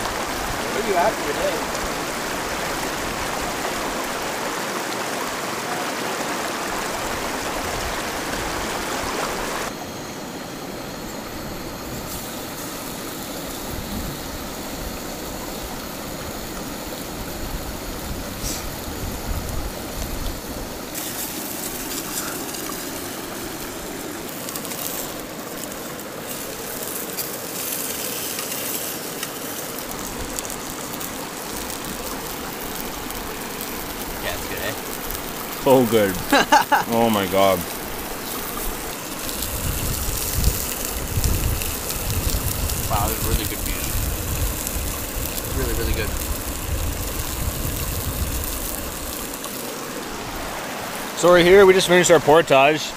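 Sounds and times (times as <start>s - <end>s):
river rapids rushing: 0.0s - 9.7s, 49.4s - 52.9s.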